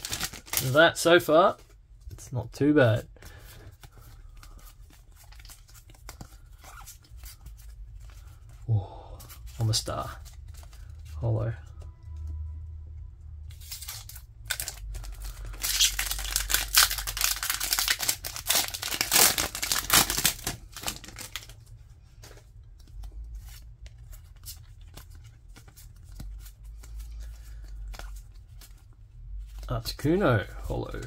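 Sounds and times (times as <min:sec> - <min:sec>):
foil wrapper tearing and crinkling: 0:00.0 - 0:00.8, 0:13.6 - 0:21.5
cards rustling and clicking: 0:00.0 - 0:02.3, 0:02.9 - 0:12.4, 0:13.5 - 0:31.0.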